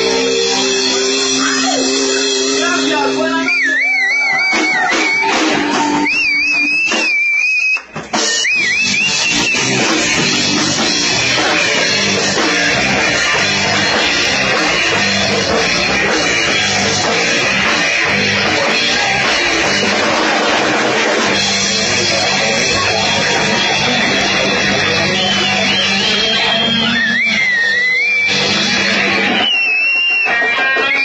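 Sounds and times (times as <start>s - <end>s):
high wavering guitar note: 0.0s - 6.1s
live rock band playing: 0.0s - 31.0s.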